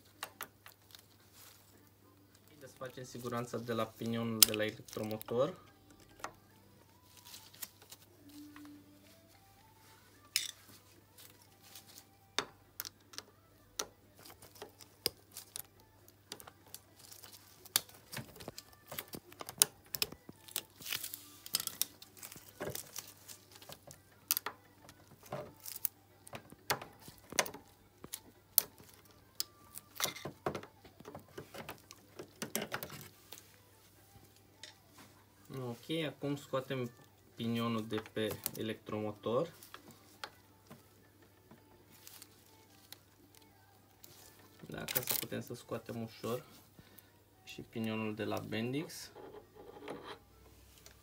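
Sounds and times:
metal tool clicks and scrapes: 10.3s - 10.6s.

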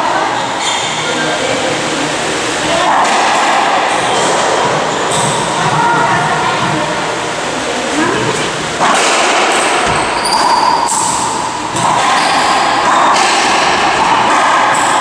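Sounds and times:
steady background noise: 0.0s - 15.0s
racquetball smacks echoing: 8.8s - 15.0s.

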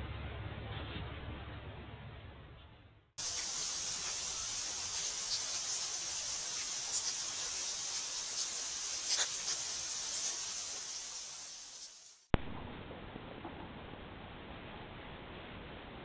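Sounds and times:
high-pitched hiss: 3.2s - 12.3s.

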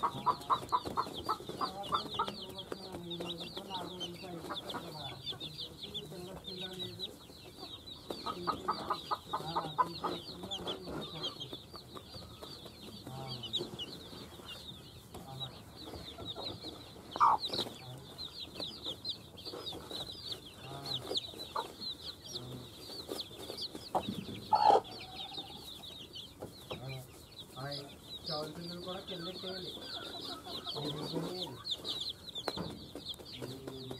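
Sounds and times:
hen clucking softly: 0.0s - 18.4s, 23.6s - 32.6s
chicks peeping: 0.0s - 33.9s.

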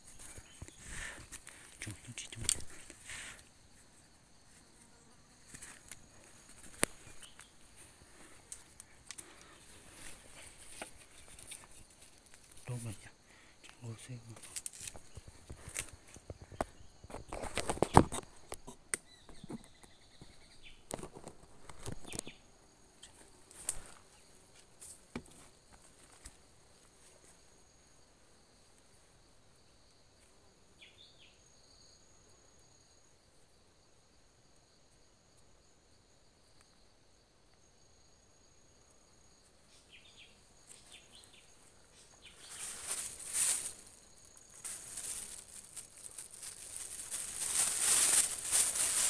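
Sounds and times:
high insect trill: 0.0s - 49.0s
footsteps in dry leaf litter: 42.4s - 49.0s.

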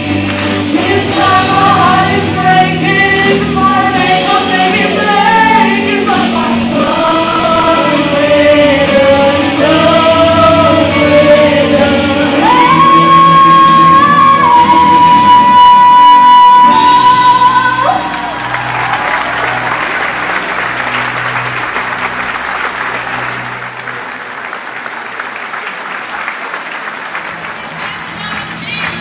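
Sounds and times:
singing group and band: 0.0s - 19.6s
audience applause: 17.8s - 29.0s.

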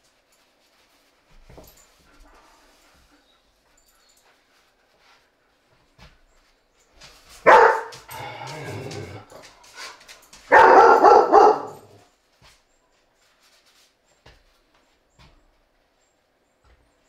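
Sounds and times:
dog barking loudly: 7.4s - 9.0s, 10.5s - 12.0s.

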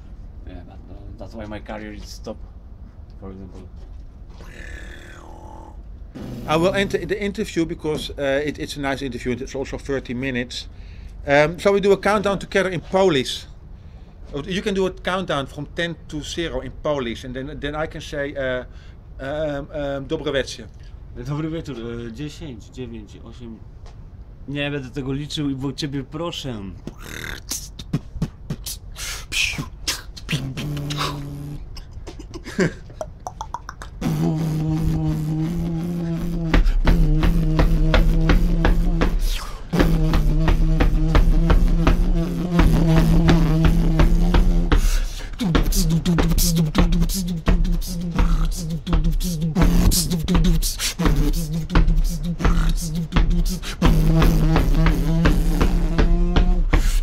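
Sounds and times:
beatboxing clicks and hisses: 4.3s - 5.5s, 6.1s - 7.4s, 26.8s - 57.0s
hummed low bass note: 6.2s - 7.4s, 34.0s - 44.8s, 45.4s - 56.7s.

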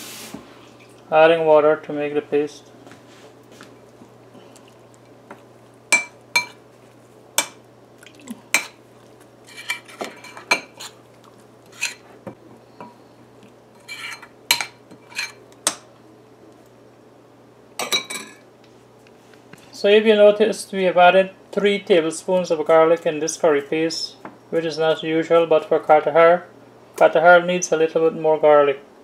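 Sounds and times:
metal spoon scraping ceramic bowl: 9.5s - 11.0s, 11.7s - 12.0s, 13.8s - 15.4s.

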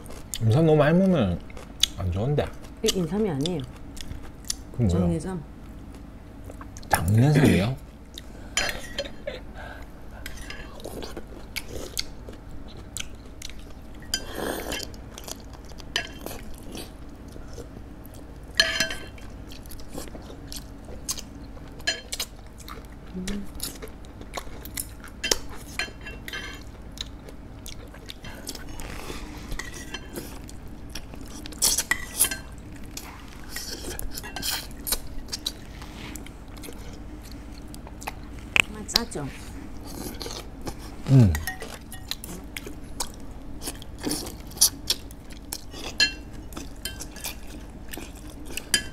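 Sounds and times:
low room hum: 0.0s - 48.9s
chewing: 10.1s - 18.4s, 19.1s - 38.4s, 39.8s - 48.9s.

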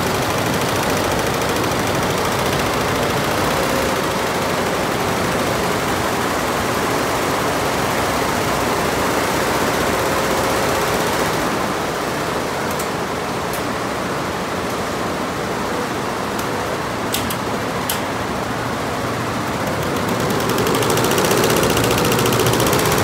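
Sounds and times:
embroidery machines rattling: 0.0s - 7.2s, 16.4s - 23.0s.

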